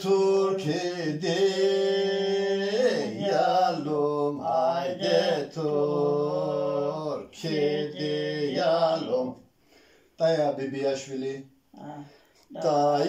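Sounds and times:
man singing unaccompanied: 0.0 - 9.4, 12.5 - 13.0.

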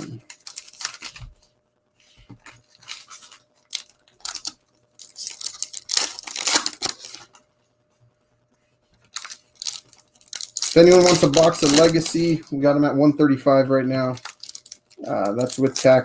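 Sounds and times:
foil wrapper tearing and crinkling: 0.1 - 1.4, 2.7 - 7.4, 9.0 - 12.5, 13.9 - 16.0.

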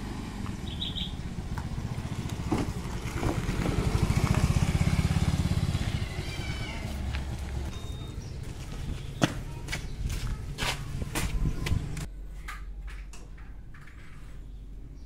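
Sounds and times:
motor scooter passing by: 0.0 - 8.1.

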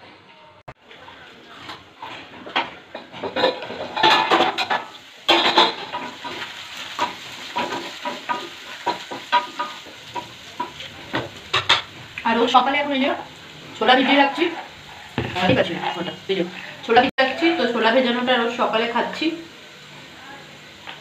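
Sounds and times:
vegetables frying in a pan: 0.8 - 21.0
spoon scraping and knocking pan: 1.6 - 12.1, 14.1 - 16.0.

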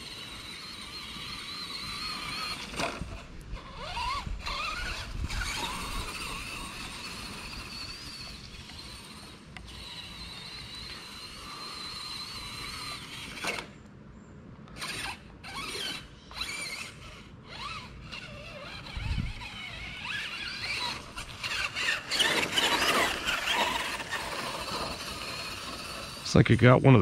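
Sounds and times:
toy truck gears whining: 0.0 - 13.8, 14.7 - 26.8.

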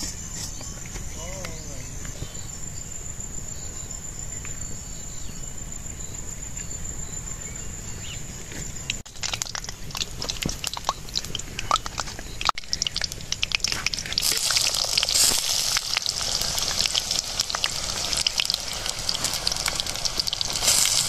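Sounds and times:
crickets droning: 0.0 - 21.0
hot oil crackling and spitting: 8.8 - 21.0.

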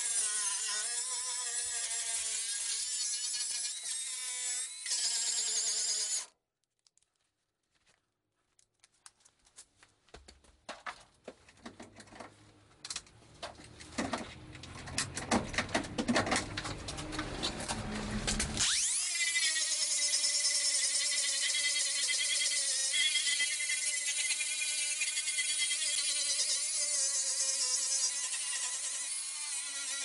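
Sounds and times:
whining power tool: 18.4 - 30.0.

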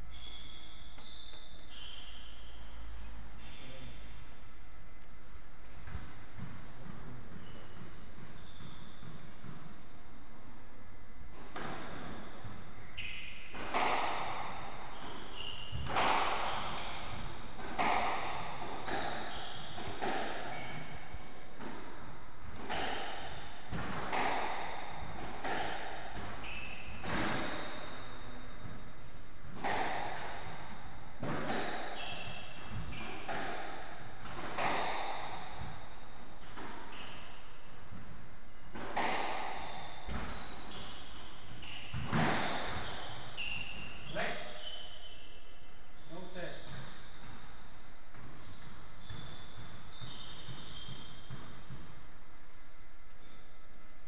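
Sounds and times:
shoes squeaking on wooden floor: 0.0 - 4.1, 5.8 - 9.3, 12.2 - 21.4, 26.3 - 37.4, 39.0 - 51.9
squash ball hitting rackets and walls: 5.7 - 10.6, 11.2 - 45.5, 46.3 - 52.6.

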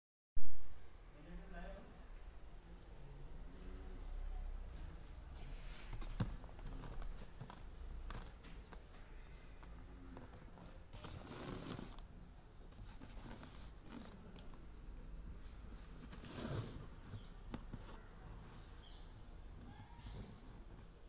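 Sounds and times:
rubbing and rustling handling noise: 5.2 - 19.0.

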